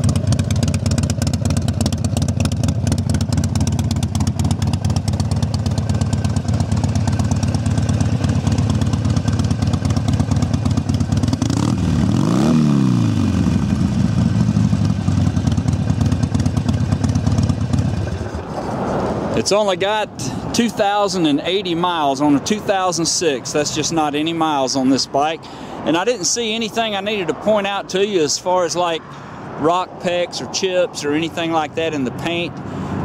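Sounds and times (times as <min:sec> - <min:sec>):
motorcycle engine idling: 0:00.0 - 0:18.6.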